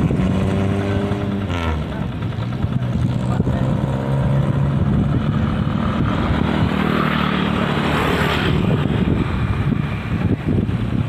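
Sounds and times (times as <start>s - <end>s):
rushing noise: 3.7s - 11.0s.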